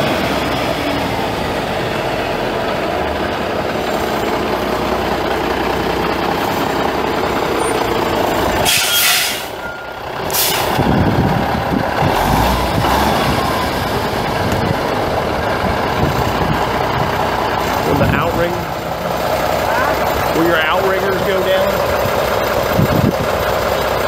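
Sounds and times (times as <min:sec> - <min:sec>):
diesel truck engine running: 0:00.0 - 0:24.0
sharp air brake hisses: 0:08.6 - 0:09.6, 0:10.3 - 0:10.8.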